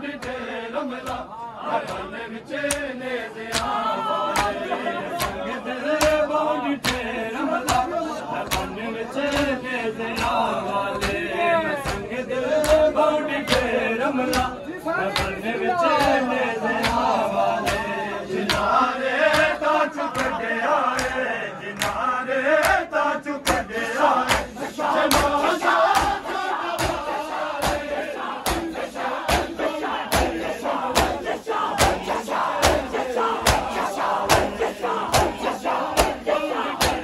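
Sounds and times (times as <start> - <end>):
men chanting in unison: 0.0 - 37.0
hands slapping chests: 3.5 - 3.8, 4.4 - 5.4, 6.0 - 9.6, 14.3 - 18.7, 19.3 - 20.4, 21.0 - 21.2, 21.8 - 22.0, 22.6 - 37.0.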